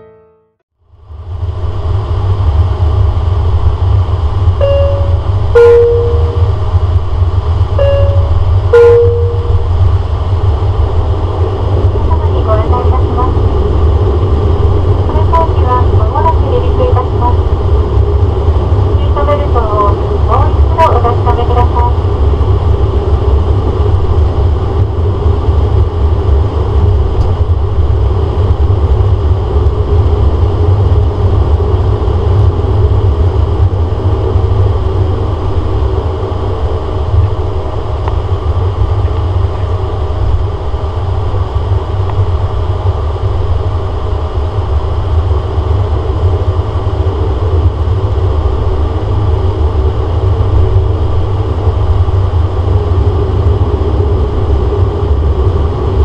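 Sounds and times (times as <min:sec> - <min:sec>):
turboprop cabin drone: 0:00.0 - 0:56.0
faint steady tones: 0:04.5 - 0:10.3.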